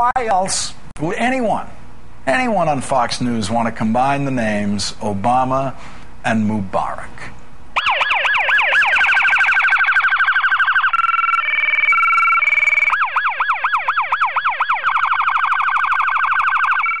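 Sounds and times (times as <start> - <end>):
electronic siren cycling tones: 7.8 - 17.0.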